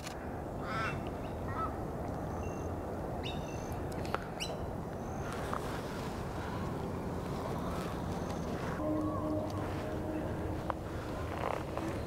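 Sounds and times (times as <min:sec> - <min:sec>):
low background rumble: 0:06.1 - 0:12.0.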